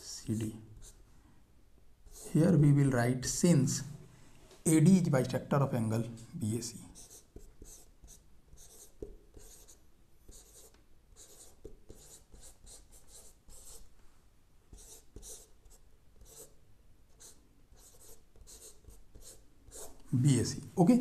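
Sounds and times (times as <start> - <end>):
chalk scratching on chalkboard: 2.1 - 2.5, 7.0 - 13.8, 14.7 - 20.2
chalk tapping: 7.0 - 13.8.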